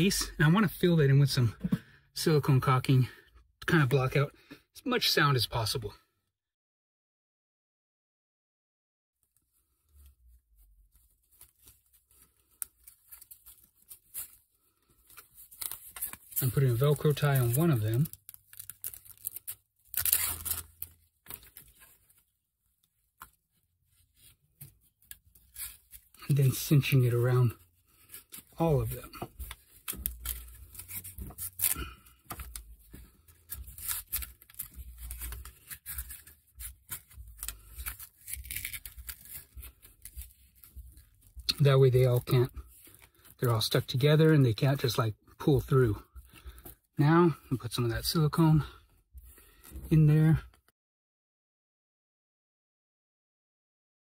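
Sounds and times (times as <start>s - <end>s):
cables rustling and scraping: 9.3s - 44.1s.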